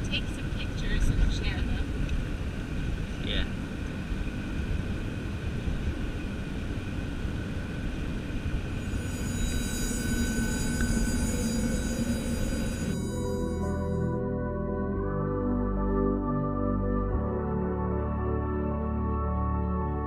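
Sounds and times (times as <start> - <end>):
soft ambient music: 8.8 - 20.0.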